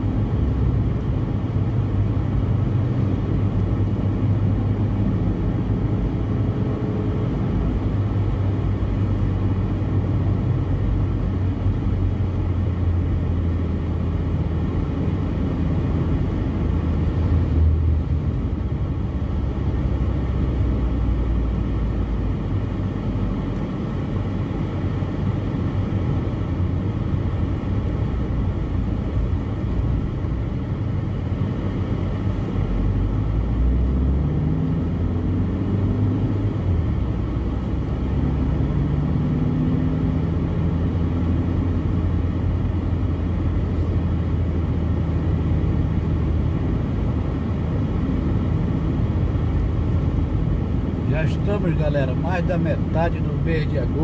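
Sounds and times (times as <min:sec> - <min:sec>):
car cabin engine and road noise: 0:00.0 - 0:54.0
bus passing close by: 0:25.2 - 0:53.8.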